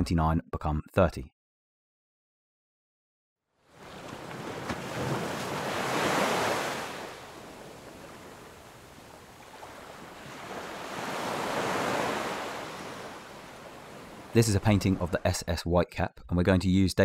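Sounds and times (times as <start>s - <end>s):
ocean waves: 3.6s - 15.3s.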